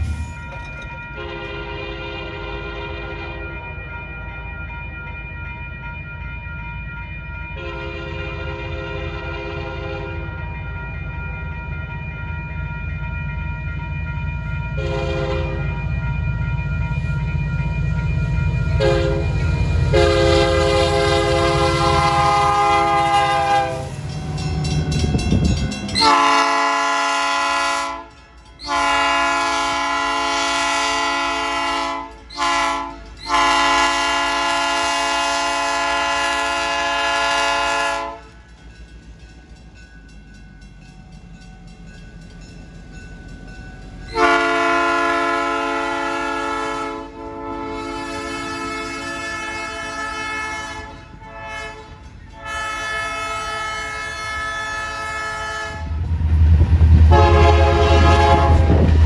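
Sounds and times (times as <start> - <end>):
heavy rumble of passing train: 0.0 - 59.0
diesel train horn: 1.2 - 3.6, 7.6 - 10.4, 14.8 - 15.8, 18.8 - 38.4, 44.1 - 56.1, 57.1 - 59.0.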